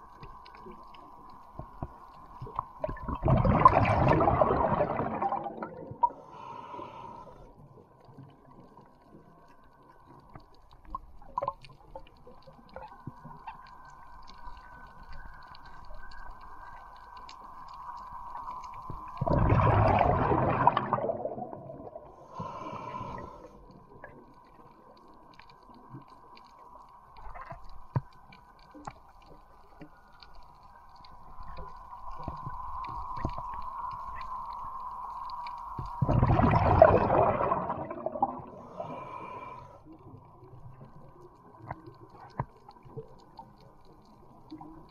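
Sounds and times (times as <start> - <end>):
faint clicks: 0.0 - 3.0, 7.9 - 19.3, 22.6 - 36.0, 38.8 - 44.9
air bubbles gurgling: 2.4 - 6.2, 19.0 - 22.2, 35.8 - 39.0.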